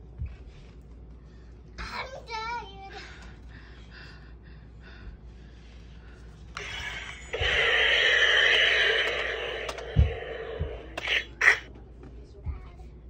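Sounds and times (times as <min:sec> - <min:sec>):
toy gun hissing blast: 0:06.6 - 0:11.7.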